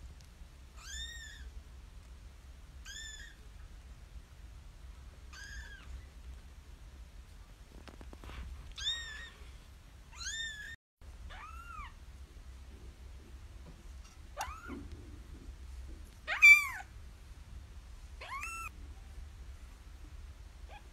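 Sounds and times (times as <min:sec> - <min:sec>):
kittens mewing: 0:16.3 - 0:16.9, 0:18.2 - 0:18.7.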